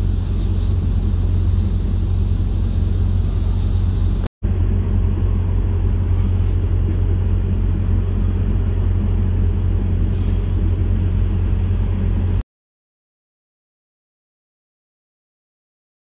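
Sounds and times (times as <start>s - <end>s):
diesel truck engine idling: 0.0s - 12.4s.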